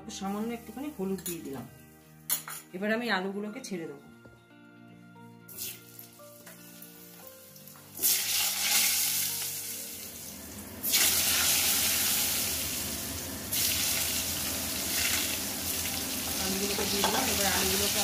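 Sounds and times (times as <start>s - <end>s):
potatoes sizzling in hot oil: 5.5s - 18.0s.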